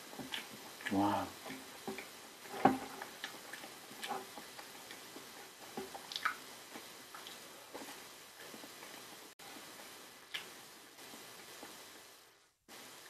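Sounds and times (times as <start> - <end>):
chewing sounds: 0.0 - 9.0.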